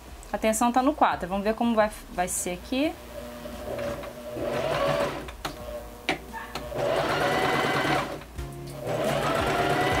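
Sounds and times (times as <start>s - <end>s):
sewing machine stitching: 3.6s - 5.3s, 6.7s - 8.2s, 8.8s - 10.0s.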